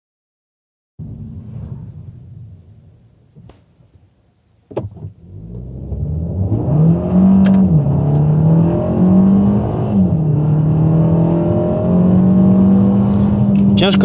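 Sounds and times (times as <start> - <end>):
car engine accelerating: 4.8 - 14.0.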